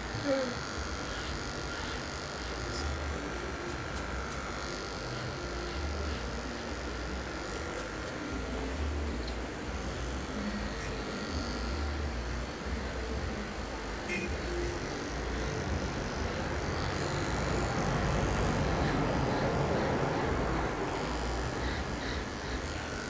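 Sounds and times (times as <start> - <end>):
electric hair clippers running: 0.0 - 23.0.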